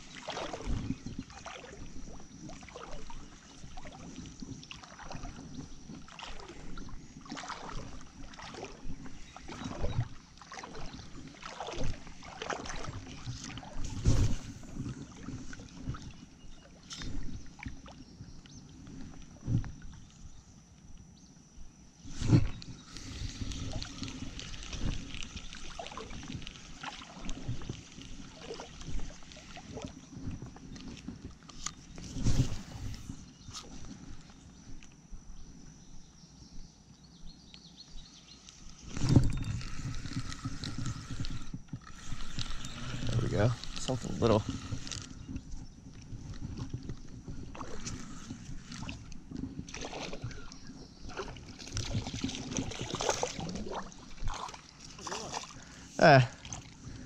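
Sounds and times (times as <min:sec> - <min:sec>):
knocks and splashes: 0:00.0 - 0:01.8, 0:02.6 - 0:16.2, 0:23.5 - 0:31.3, 0:46.3 - 0:56.8
creek water sloshing: 0:00.0 - 0:18.1, 0:22.0 - 0:34.3, 0:38.4 - 0:57.0.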